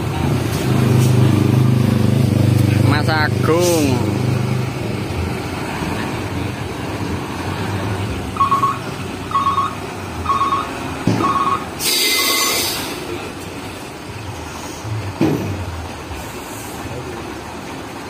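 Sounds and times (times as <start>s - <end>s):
diesel truck engines idling: 0.0s - 18.0s
truck warning beeper: 8.3s - 13.0s
brake air hiss: 11.8s - 13.2s.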